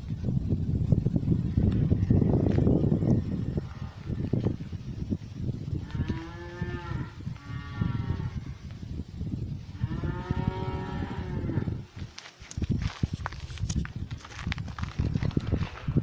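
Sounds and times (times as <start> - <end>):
low rumbling noise: 0.0 - 16.0
cows mooing: 5.8 - 8.4, 9.8 - 11.8.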